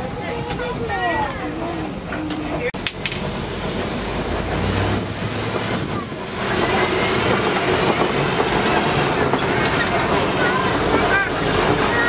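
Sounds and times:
road rumble: 0.0 - 12.0
truck engine running: 1.9 - 12.0
wind noise: 2.9 - 12.0.

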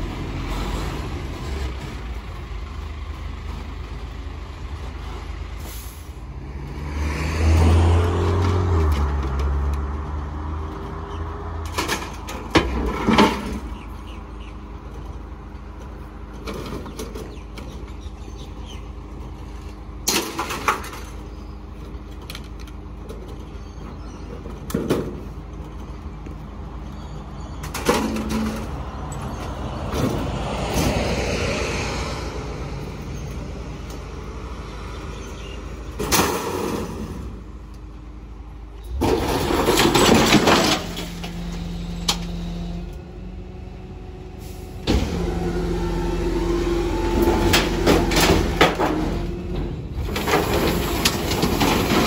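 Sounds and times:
diesel engine running: 0.0 - 52.0
metal bangs and clanks: 27.6 - 29.2, 35.9 - 37.5, 38.9 - 42.4, 47.0 - 52.0
hydraulic compactor whine: 44.4 - 52.0.

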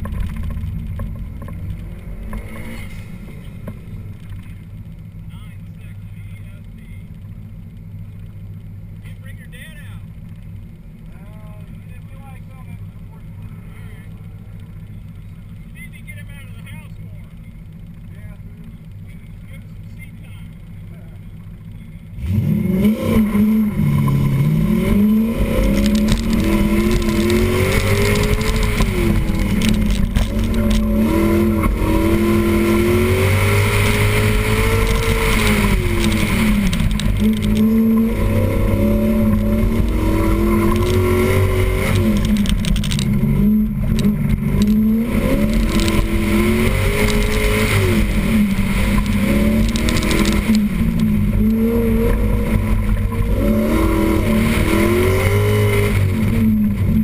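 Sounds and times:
sports car engine revving: 0.0 - 57.0.

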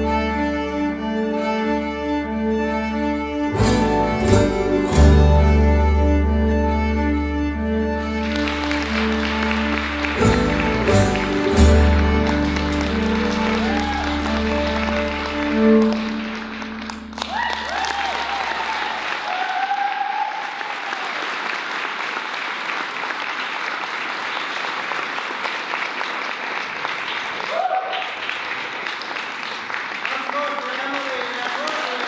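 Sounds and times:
performance music: 0.0 - 32.0
audience applauding and cheering: 8.1 - 32.0.

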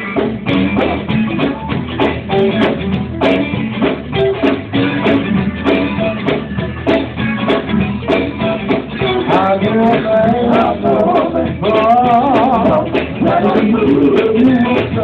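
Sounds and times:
electric guitar: 0.0 - 15.0
person singing: 8.4 - 15.0.

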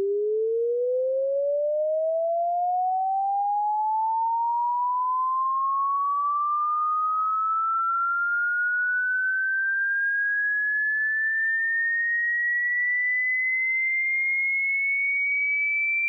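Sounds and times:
rising sine tone sweep: 0.0 - 12.8.

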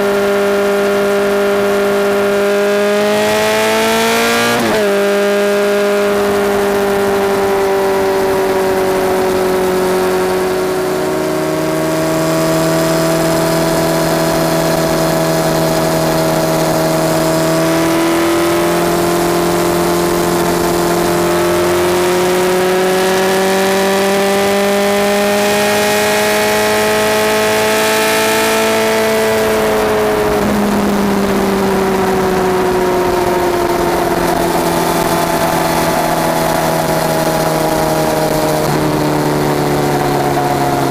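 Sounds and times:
motorcycle exhaust at cruise: 0.0 - 40.9.

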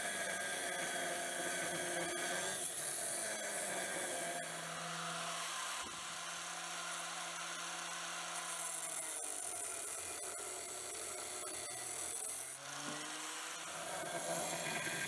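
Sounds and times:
angle grinder grinding steel: 0.0 - 15.0.

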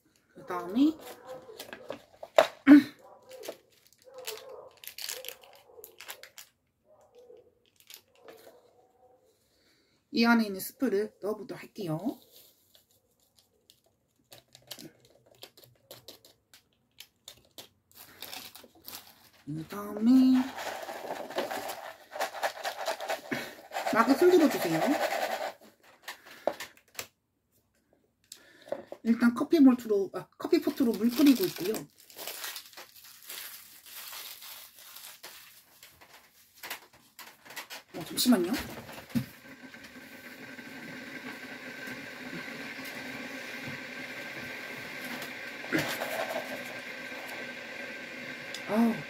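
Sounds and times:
packet crinkling: 0.0 - 8.7, 12.2 - 27.0, 30.6 - 38.6.

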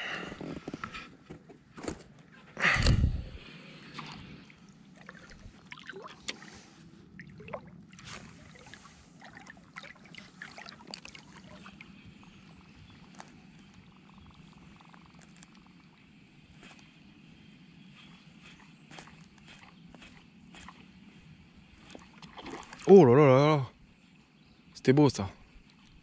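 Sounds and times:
water lapping and splashing: 3.4 - 13.4, 18.0 - 23.3.

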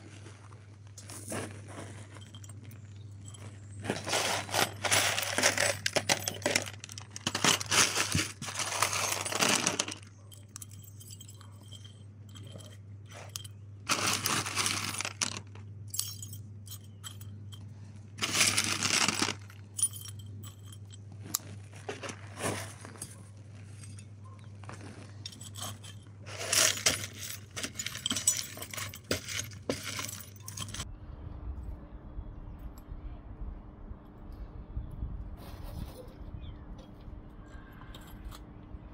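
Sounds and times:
steady low hum: 0.0 - 38.9
small metal pieces clinking: 2.1 - 22.2, 24.7 - 30.8.

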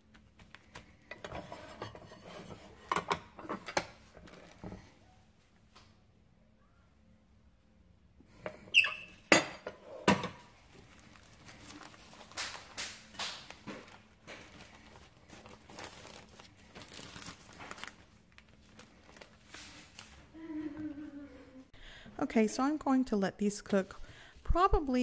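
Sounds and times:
plastic bag crinkling: 10.6 - 20.2.

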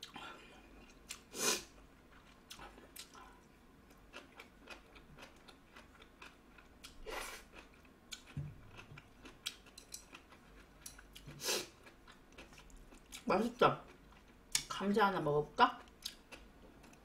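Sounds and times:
soft chewing: 0.0 - 14.8, 15.7 - 17.0
chopsticks clicking: 9.5 - 10.2.

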